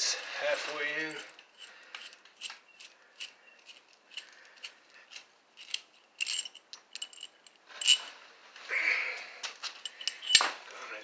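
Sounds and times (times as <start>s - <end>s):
metallic clinks of washer and nut: 0.9s - 8.1s, 9.8s - 11.0s.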